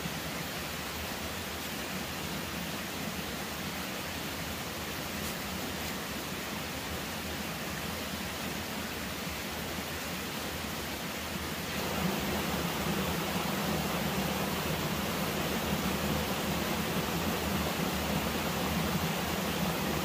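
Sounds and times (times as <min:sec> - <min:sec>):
steady rushing noise: 0:11.4 - 0:20.0.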